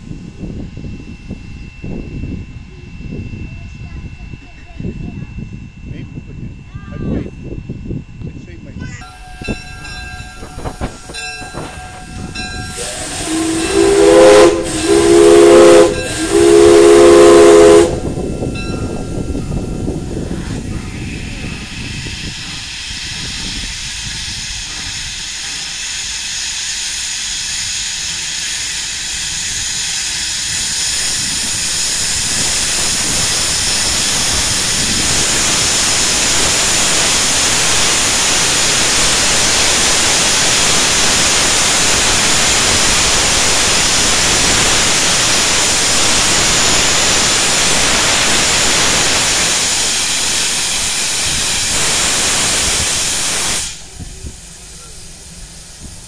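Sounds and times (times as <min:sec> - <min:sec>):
steam locomotive hissing steam: 0:00.0 - 0:56.0.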